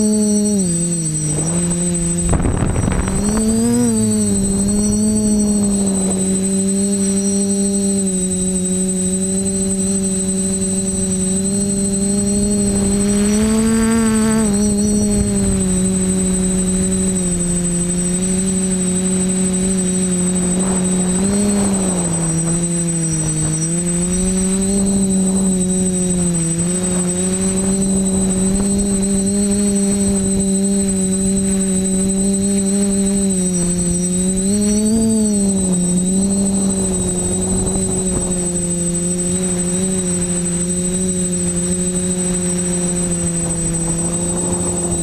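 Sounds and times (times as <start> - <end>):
drone motors humming: 0.0 - 45.0
faint high whine: 0.0 - 45.0.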